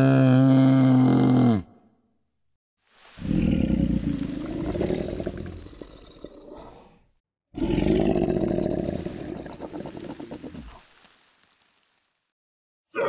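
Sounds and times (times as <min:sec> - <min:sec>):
large animal roaring: 0:00.0 - 0:01.8, 0:03.2 - 0:07.0, 0:07.6 - 0:10.4.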